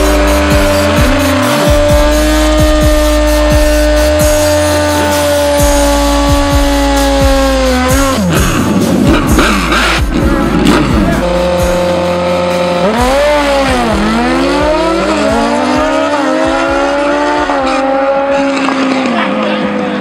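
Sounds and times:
motorcycle engine revving hard: 0:00.0 - 0:20.0.

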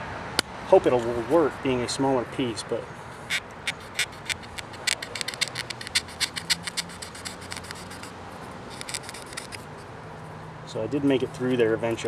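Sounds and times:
knife blade rasping through leather: 0:03.3 - 0:09.7.

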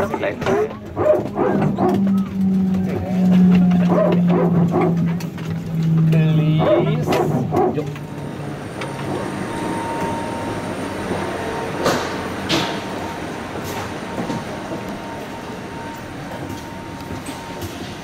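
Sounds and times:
mechanical drone: 0:00.0 - 0:12.8
faint high whine: 0:08.4 - 0:11.2.

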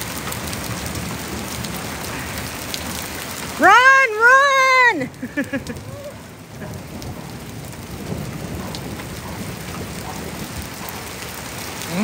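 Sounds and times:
low rumble of thunder: 0:00.0 - 0:03.7, 0:05.2 - 0:12.0
steady rain falling: 0:00.0 - 0:12.0.

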